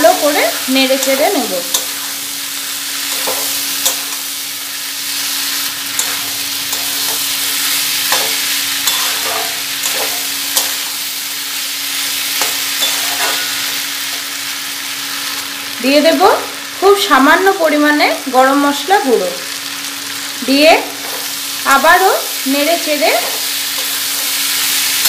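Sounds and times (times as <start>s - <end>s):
food sizzling in oil: 0.0s - 25.0s
metal spatula scraping pan: 5.9s - 11.0s, 12.4s - 13.8s.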